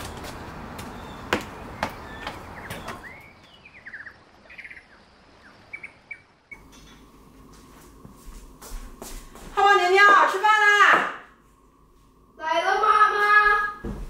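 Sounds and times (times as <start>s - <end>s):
small birds chirping: 0.0s - 7.1s
faint steady hum: 3.4s - 14.0s.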